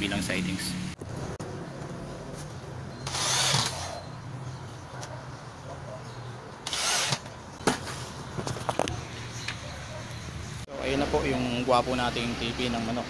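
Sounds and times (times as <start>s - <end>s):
power drill driving screws: 3.0s - 4.0s, 6.6s - 7.3s.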